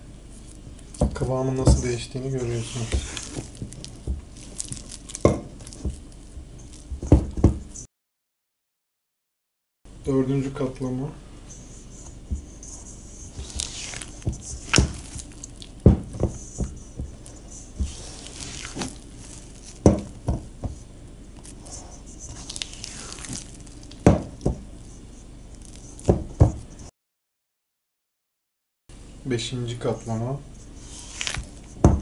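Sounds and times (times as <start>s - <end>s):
wet dough squelching: 0.4s - 7.0s, 11.9s - 26.8s, 30.6s - 31.8s.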